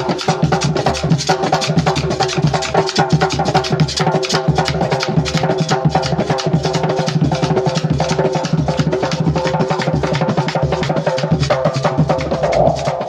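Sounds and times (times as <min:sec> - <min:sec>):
fast hand-drumming: 0:00.0 - 0:13.0
repeating bass line: 0:12.3 - 0:13.0.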